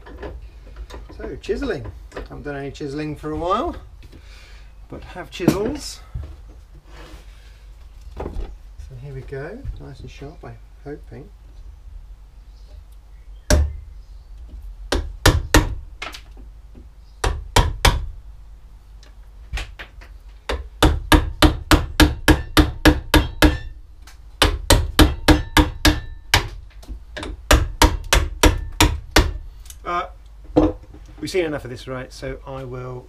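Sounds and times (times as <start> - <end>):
hammer striking wood chisel: 14.9 - 16.2, 17.2 - 18.1, 20.5 - 23.7, 24.4 - 26.6, 27.2 - 29.4.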